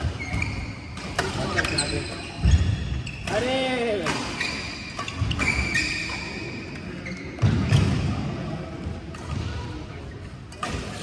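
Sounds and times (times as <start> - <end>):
racket hitting shuttlecock: 0.0 - 2.6
shoe squeak: 0.0 - 3.6, 4.2 - 7.9.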